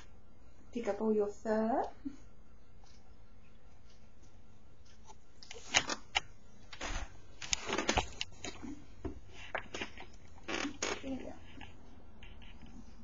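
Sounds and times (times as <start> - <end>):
rustling: 2.8 - 13.0.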